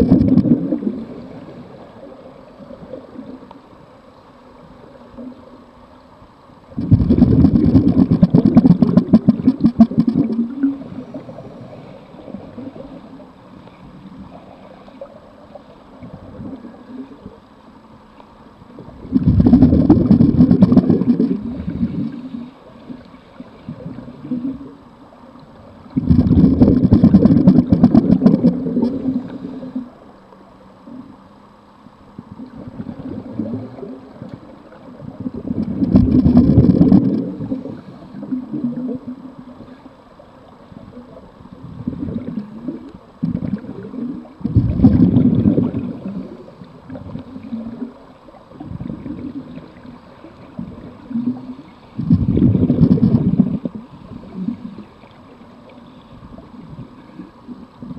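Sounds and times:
exhaust bubbles bursting underwater: 0.0 - 2.0, 6.8 - 13.0, 18.8 - 22.4, 25.8 - 30.0, 32.3 - 39.3, 40.8 - 54.8
diver inhaling through regulator: 19.2 - 22.7.

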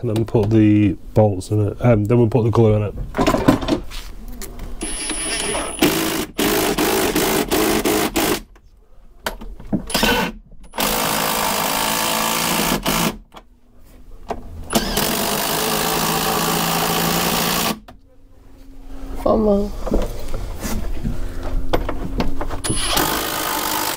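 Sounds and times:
cordless drill boring through timber: 4.8 - 8.4, 9.9 - 13.2, 14.7 - 17.8, 22.6 - 23.9.

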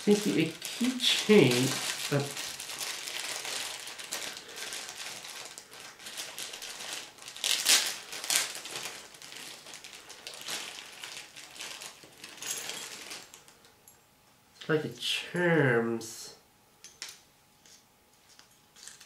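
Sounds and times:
packaging crinkling and rustling: 0.0 - 13.7, 17.7 - 19.0.

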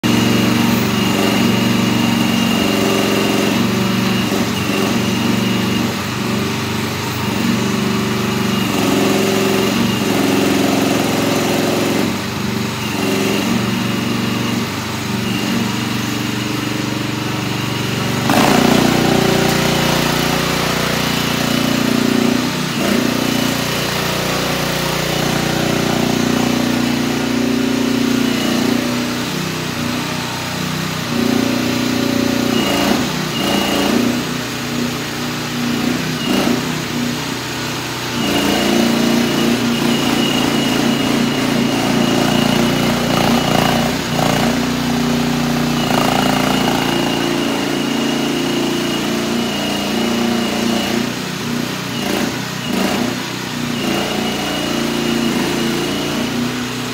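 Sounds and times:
mini excavator engine running: 0.0 - 56.9.

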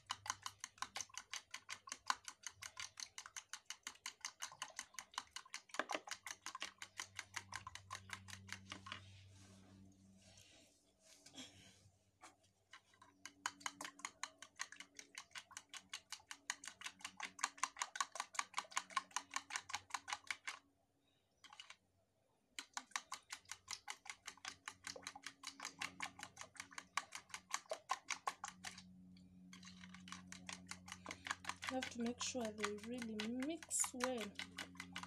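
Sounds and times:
fork clicking against plastic bowl: 0.0 - 9.0, 29.6 - 35.0.

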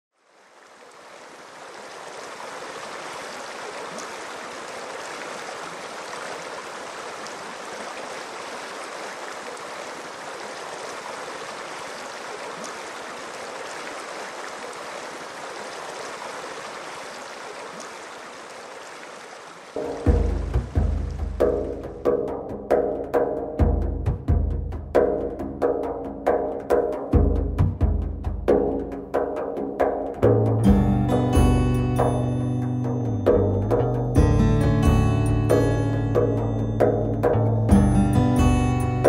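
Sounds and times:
shallow stream flowing: 0.1 - 23.6, 24.9 - 39.0
drum-heavy music: 19.8 - 39.0.

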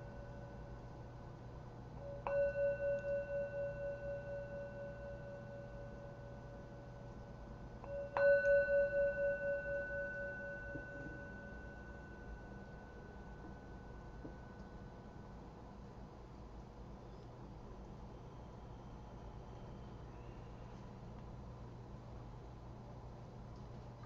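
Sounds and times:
meditation bell ringing: 0.0 - 15.9.

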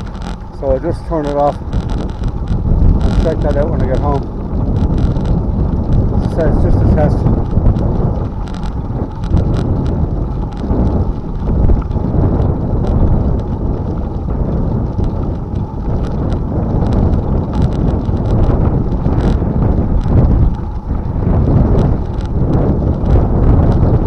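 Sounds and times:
tyres clicking on gravel: 0.0 - 10.8
heavy wind noise on microphone: 0.0 - 24.0.

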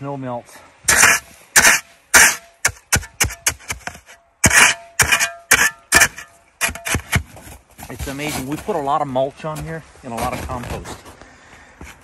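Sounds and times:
snow crunching: 6.2 - 12.0.

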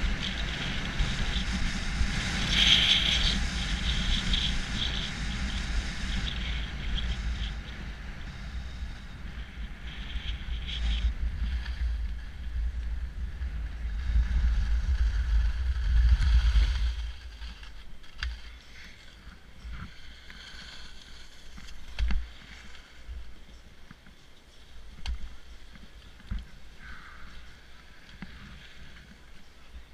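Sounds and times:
skis hissing over snow: 0.0 - 12.8, 13.4 - 29.9
wind on microphone: 0.0 - 23.5.

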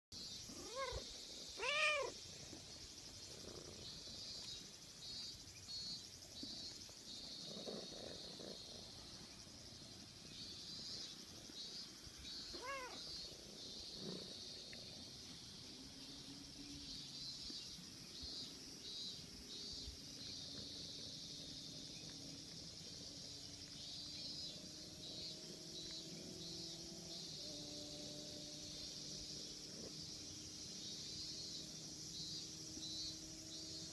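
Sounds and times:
high buzz of insects: 0.2 - 33.9
kitten meowing: 1.6 - 2.2, 12.6 - 13.1.

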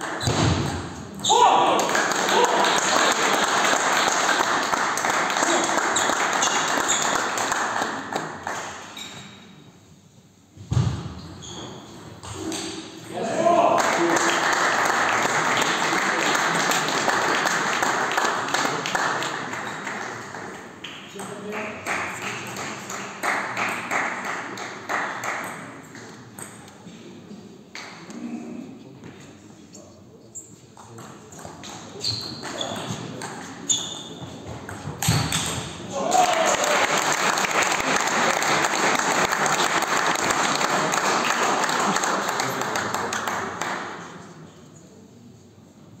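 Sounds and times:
spectators applauding: 1.7 - 8.8, 13.6 - 20.5, 36.0 - 43.8.

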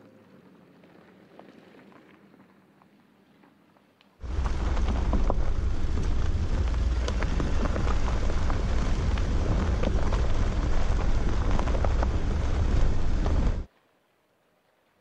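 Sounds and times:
stones ticking against car: 4.2 - 13.7
tyres rumbling over gravel: 4.2 - 13.7.

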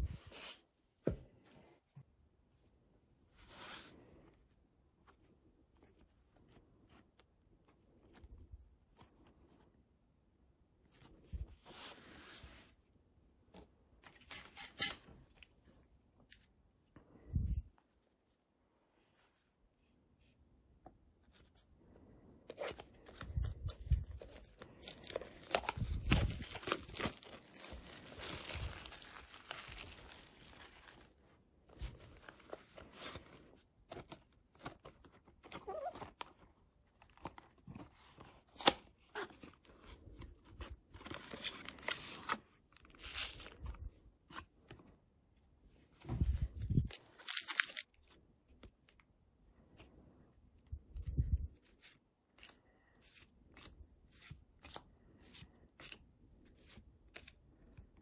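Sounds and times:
packaging tearing: 23.4 - 31.0, 46.8 - 47.9
cards rustling and clicking: 46.4 - 49.0.

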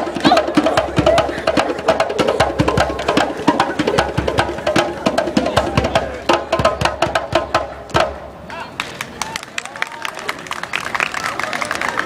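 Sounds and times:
bongo drums played by hand: 0.0 - 8.2.

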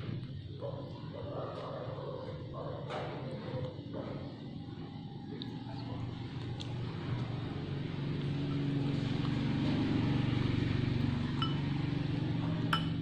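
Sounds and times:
low engine hum: 3.5 - 13.0
metal spoon clinking on ceramic bowl: 11.4 - 11.7, 12.7 - 13.0.

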